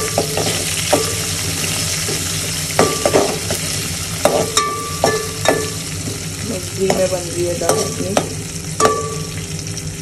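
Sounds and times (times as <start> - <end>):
metal spoon knocking on pan: 0.0 - 1.3, 2.8 - 3.6, 4.2 - 6.2, 6.8 - 9.3
onions sizzling in hot fat: 0.0 - 10.0.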